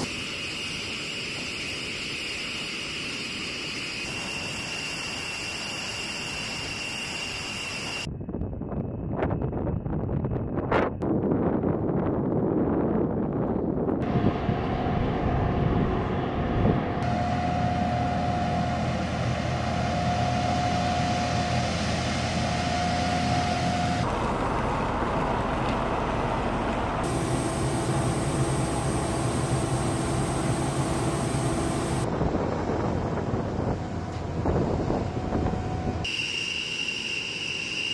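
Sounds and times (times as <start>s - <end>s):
high whistle: 0.0s - 8.1s, 36.0s - 37.9s
jet engines whining and rumbling: 0.0s - 37.9s.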